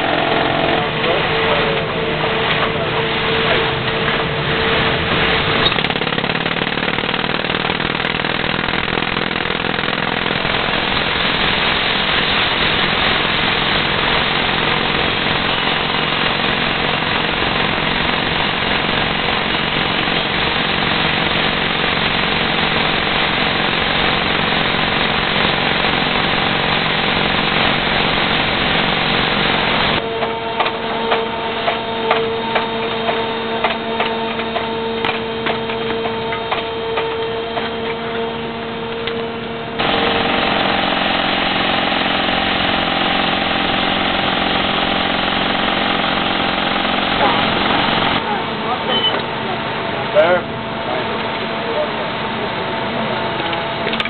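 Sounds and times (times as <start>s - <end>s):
machine hum with ticks: 0.0s - 48.2s
rock drill hammering: 5.6s - 11.8s, 13.2s - 30.0s.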